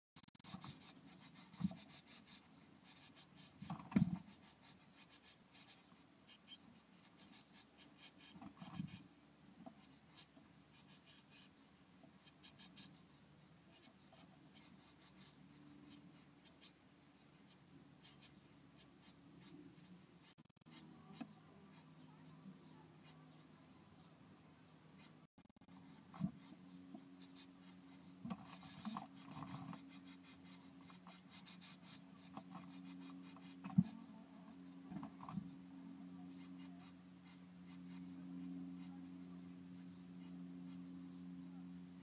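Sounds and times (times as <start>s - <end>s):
scratching and rustling of nest material: 25.5s - 39.9s.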